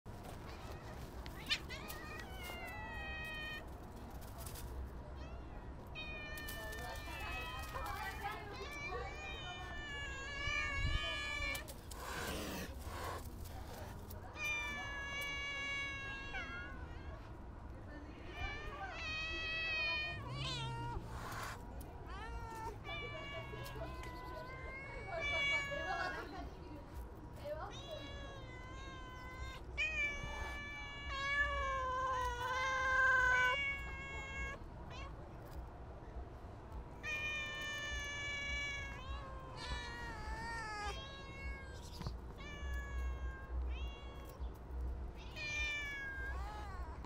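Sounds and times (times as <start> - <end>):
cat meowing high-pitched: 0.6 - 3.6, 5.2 - 11.7, 14.4 - 17.3, 18.2 - 26.3, 27.6 - 35.2, 37.0 - 44.4, 45.2 - 47.0.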